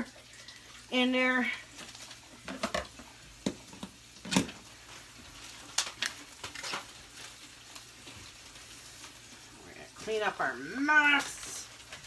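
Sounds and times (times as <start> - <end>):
butter wrapper crinkling: 4.0 - 9.4.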